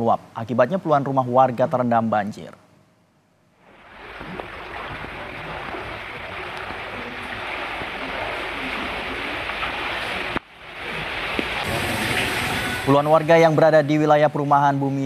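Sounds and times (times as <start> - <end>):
floodwater rushing through street: 3.6 - 15.0.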